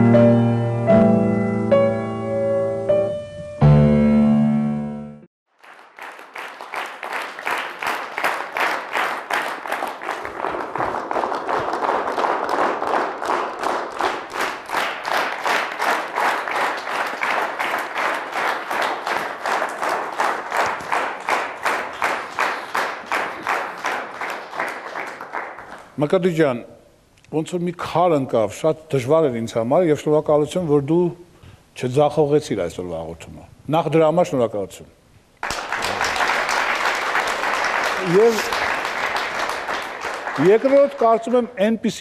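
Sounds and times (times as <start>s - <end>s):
piano chord: 0.0s - 5.3s
audience clapping in unison: 5.5s - 26.3s, 35.4s - 41.5s.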